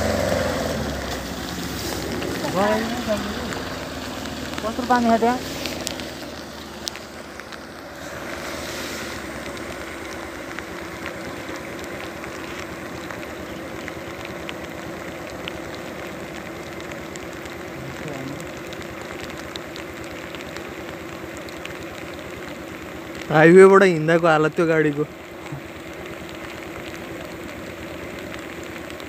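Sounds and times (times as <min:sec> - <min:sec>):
steady rain: 0:00.0 - 0:29.0
drops ticking close by: 0:00.8 - 0:29.0.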